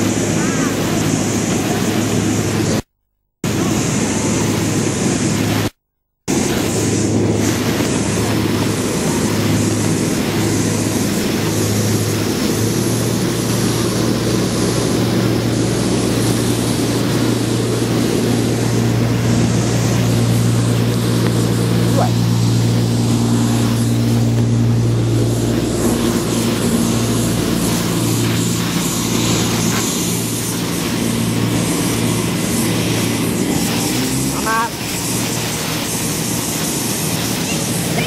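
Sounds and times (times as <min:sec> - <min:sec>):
jet aircraft engine drone: 0:00.0 - 0:38.0
low hum: 0:03.5 - 0:38.0.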